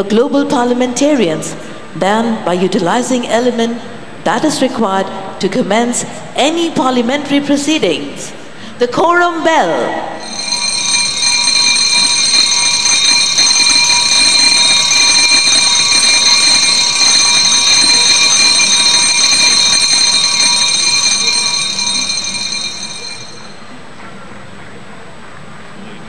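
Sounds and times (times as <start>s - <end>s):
bell ringing continuously: 10.2s - 23.8s.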